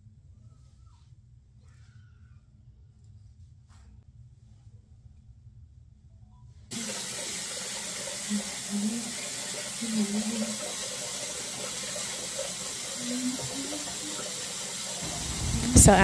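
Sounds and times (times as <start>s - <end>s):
water running from tap: 6.7s - 16.0s.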